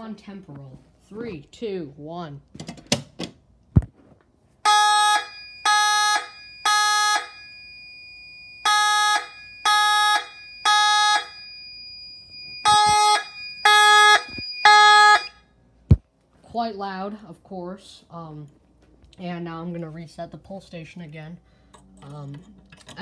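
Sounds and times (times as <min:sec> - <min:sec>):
fire alarm horns buzzing: 0:04.6 - 0:15.5.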